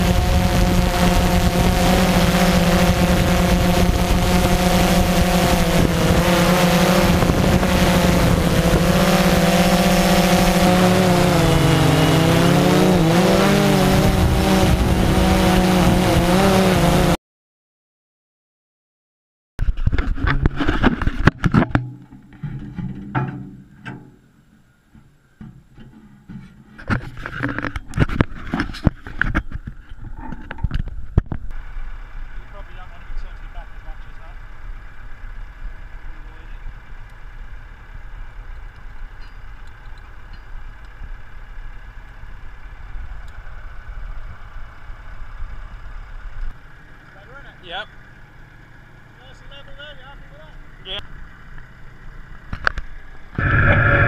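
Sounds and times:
metal clanks and knocks: 0:19.9 - 0:24.3, 0:24.9 - 0:31.2
tractor engine idling: 0:21.8 - 0:54.0.

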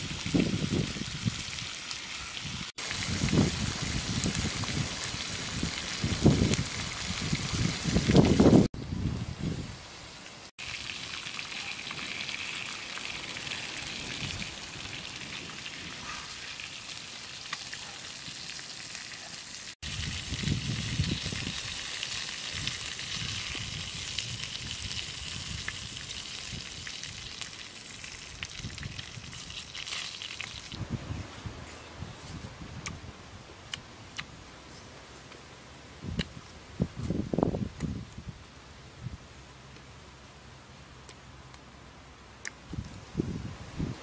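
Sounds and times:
meat sizzling in a hot pan: 0:10.6 - 0:30.8.

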